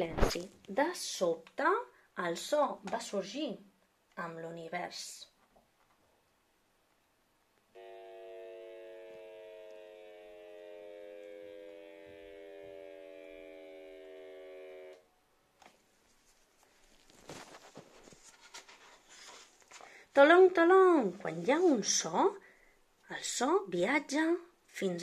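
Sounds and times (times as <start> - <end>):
electronic drone: 7.8 - 15.0
paper rustling: 15.6 - 20.0.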